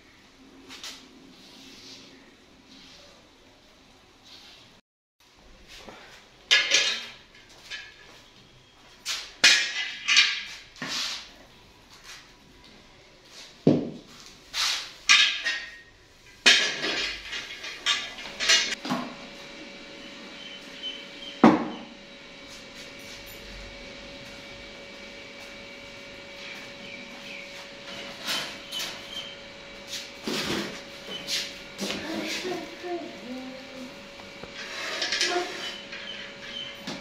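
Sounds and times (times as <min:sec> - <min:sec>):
pots and utensils clattering: 0:06.5 - 0:08.0, 0:15.1 - 0:18.8, 0:34.6 - 0:37.0
steady hum: 0:15.9 - 0:37.0.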